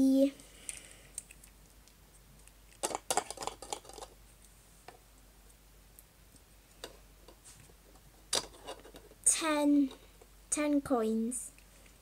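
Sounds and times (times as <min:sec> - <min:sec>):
plastic toy pieces clicking: 0:02.7 - 0:04.2.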